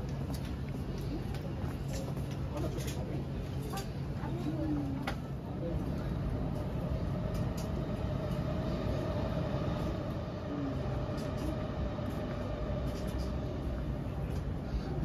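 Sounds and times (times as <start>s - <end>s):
train running: 0.0s - 15.0s
steady hum: 3.2s - 15.0s.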